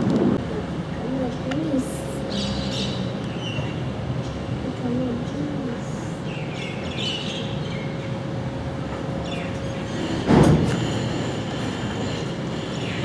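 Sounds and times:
birds chirping: 2.2s - 5.3s, 6.1s - 8.4s, 9.2s - 10.2s, 12.0s - 13.0s.

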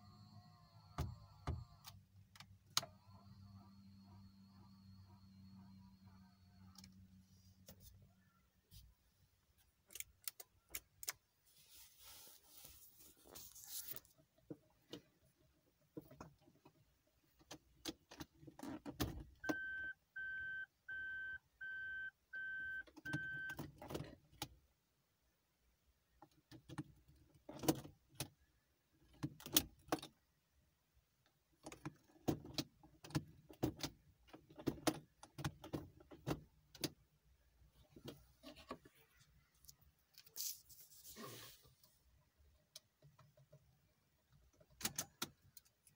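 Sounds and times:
dashboard chime beeping: 19.4s - 23.5s
gear selector clicks and clunks: 44.3s - 45.9s.

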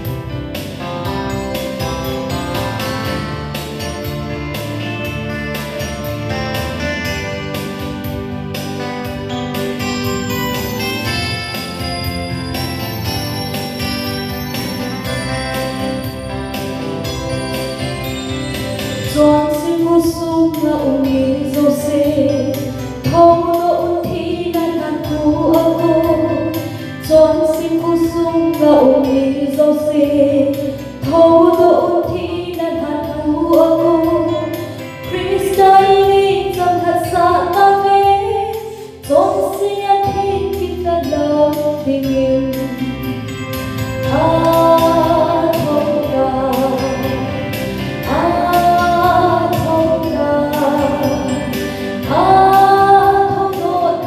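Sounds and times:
instrumental accompaniment with beat: 0.0s - 54.0s
woman singing gospel song: 19.1s - 42.7s, 44.0s - 54.0s.

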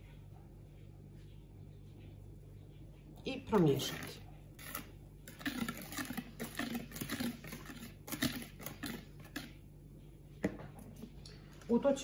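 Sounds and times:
whisk swishing batter: 3.6s - 9.7s.

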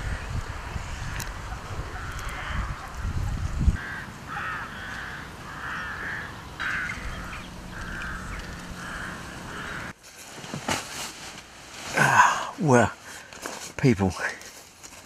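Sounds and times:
wind buffeting microphone: 0.0s - 4.6s
crows cawing: 1.0s - 10.0s.

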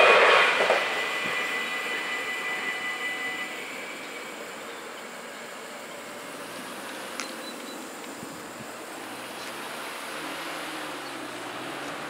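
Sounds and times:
road and wind noise: 0.0s - 12.0s
low engine hum: 3.5s - 12.0s.

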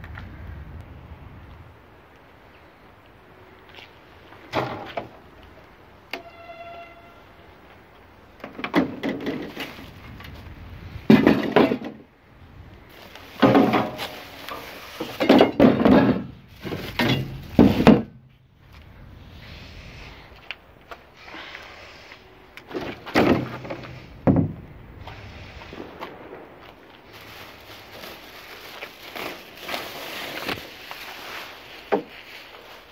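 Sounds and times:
plastic and bubble wrap rustling: 9.3s - 11.1s, 12.8s - 18.1s, 26.7s - 32.9s.

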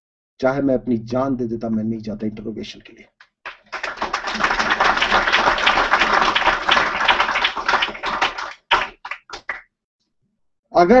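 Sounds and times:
audience applauding: 3.5s - 9.7s.

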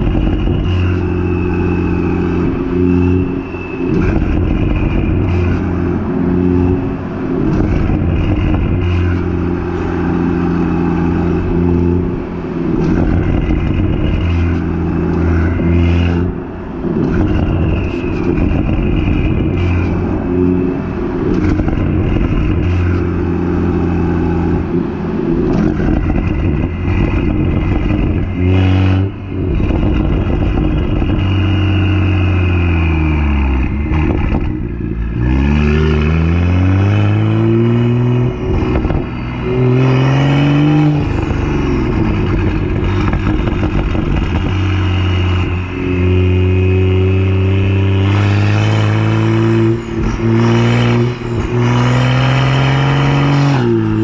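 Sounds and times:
car engine and exhaust drone: 0.0s - 54.0s.

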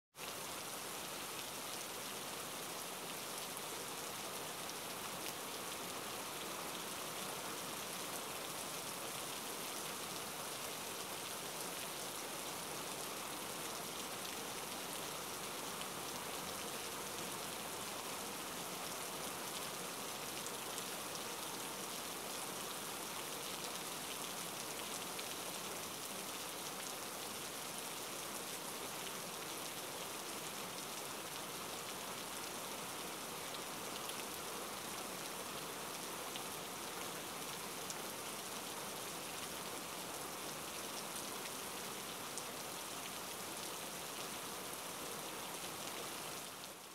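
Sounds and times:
steady rain hiss: 0.2s - 46.9s.

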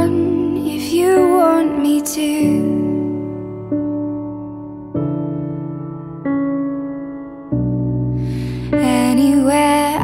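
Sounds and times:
woman singing: 0.0s - 3.3s, 8.4s - 10.0s
soft piano ballad: 0.0s - 10.0s.

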